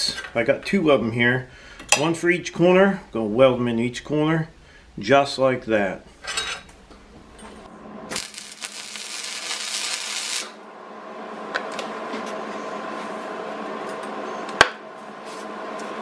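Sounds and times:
steady hum: 0:00.0 - 0:16.0
welder crackling sizzle: 0:07.2 - 0:10.7.

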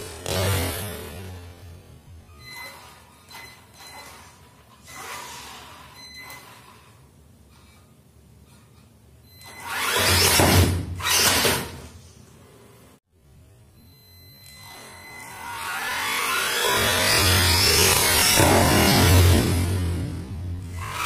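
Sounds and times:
toy truck motor whirring: 0:02.6 - 0:07.1, 0:09.6 - 0:10.4, 0:14.6 - 0:19.9, 0:20.7 - 0:21.0.

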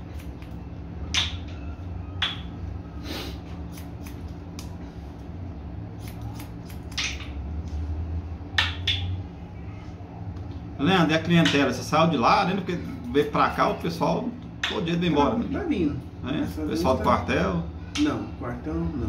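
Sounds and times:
scissors snipping hair: 0:00.0 - 0:00.6, 0:03.6 - 0:04.8, 0:06.0 - 0:07.4
steady low hum: 0:00.0 - 0:19.0.

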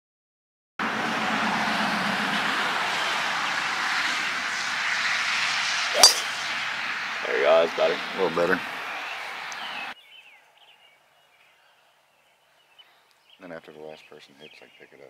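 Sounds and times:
steady rushing noise: 0:03.0 - 0:10.0
golf club striking ball: 0:05.9 - 0:06.5.

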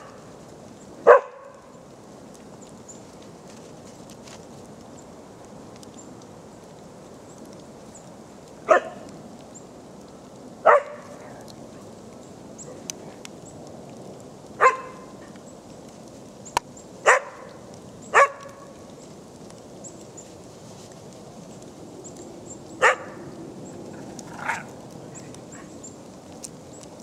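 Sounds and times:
dog barking: 0:01.0 - 0:01.6, 0:08.7 - 0:09.0, 0:10.6 - 0:11.2, 0:14.6 - 0:15.1, 0:17.0 - 0:17.5, 0:18.1 - 0:18.6, 0:22.8 - 0:23.2.

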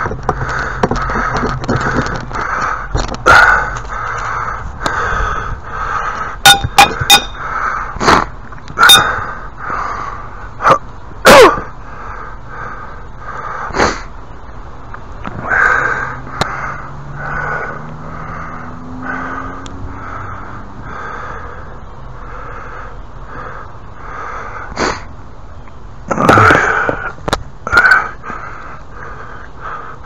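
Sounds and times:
wood and tools knocking: 0:00.0 - 0:02.4.

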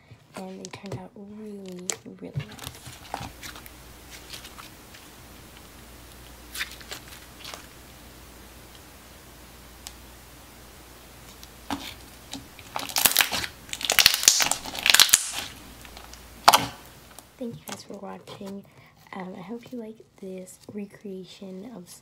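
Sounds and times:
slime squeezed and crackling: 0:06.4 - 0:07.7, 0:11.3 - 0:17.2.

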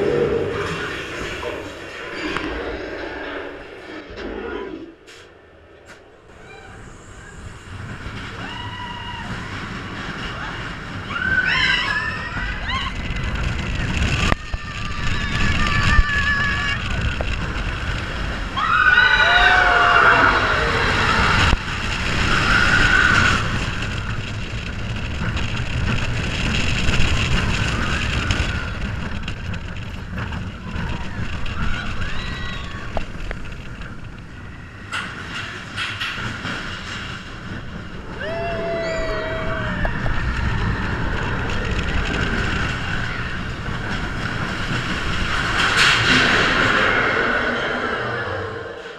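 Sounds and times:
roller coaster rumbling on track: 0:00.0 - 0:48.9
wind rushing over microphone: 0:00.0 - 0:48.9
high wailing cries: 0:38.1 - 0:41.2.

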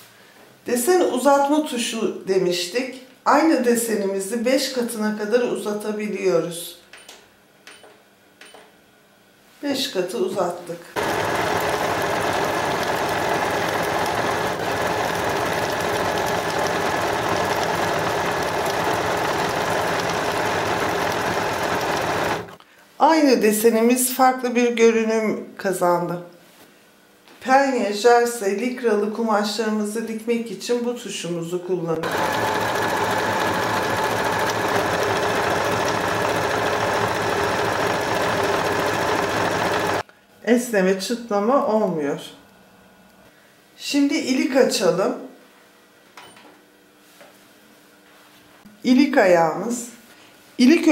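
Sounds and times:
sewing machine stitching: 0:11.0 - 0:22.6, 0:32.0 - 0:40.0.

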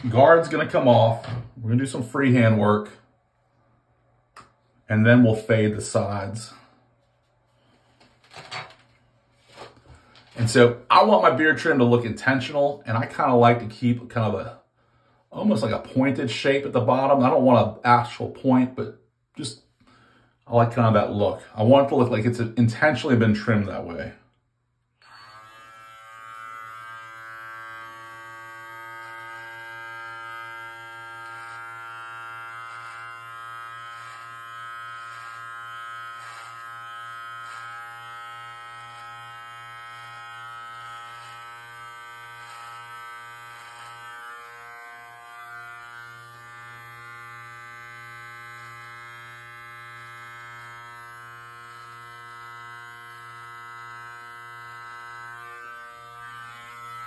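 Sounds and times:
beard trimmer buzzing: 0:25.0 - 0:57.0.

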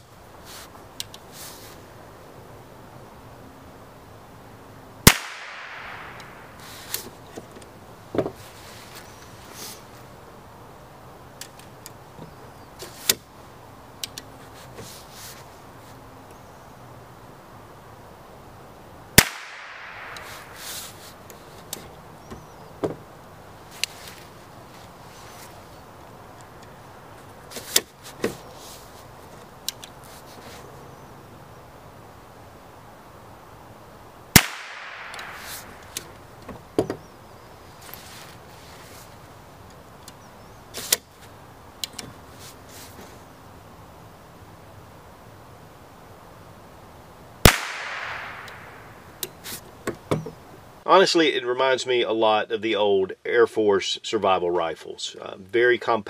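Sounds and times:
steady background hiss: 0:00.0 - 0:56.0
rifle shot crack: 0:05.0 - 0:06.6, 0:19.2 - 0:20.6, 0:34.3 - 0:35.9, 0:47.4 - 0:49.1.

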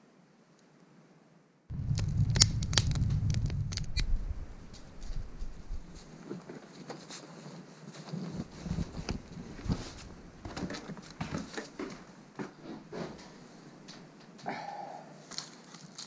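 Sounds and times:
irregular crunching: 0:01.7 - 0:06.1
low rumble with sharp crackles: 0:01.7 - 0:06.2, 0:08.4 - 0:10.6
footsteps crunching through snow: 0:08.1 - 0:11.5.

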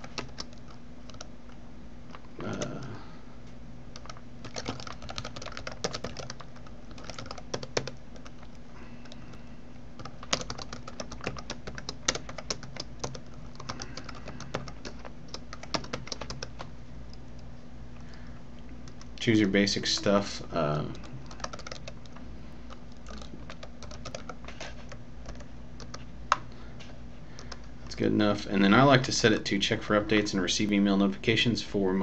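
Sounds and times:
computer keyboard typing: 0:00.0 - 0:01.3, 0:03.9 - 0:09.4, 0:10.0 - 0:18.2, 0:18.8 - 0:19.2, 0:20.8 - 0:26.0
steady low hum: 0:00.0 - 0:32.0.

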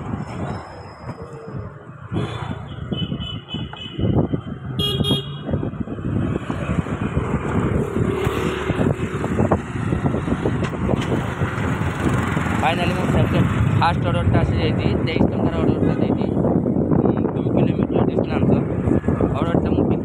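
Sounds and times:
road traffic: 0:00.0 - 0:20.0
wind rumble on microphone: 0:00.0 - 0:20.0
vehicle horns tooting: 0:02.2 - 0:04.2, 0:04.8 - 0:05.6.

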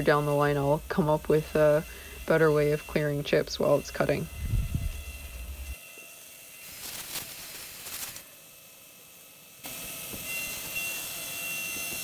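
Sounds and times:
milling machine cutting metal: 0:00.0 - 0:12.0
brush sweeping metal chips: 0:06.6 - 0:08.3.

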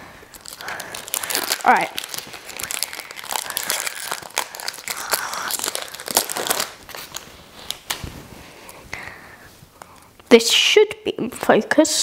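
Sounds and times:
foil wrapper crinkling: 0:00.3 - 0:08.0.

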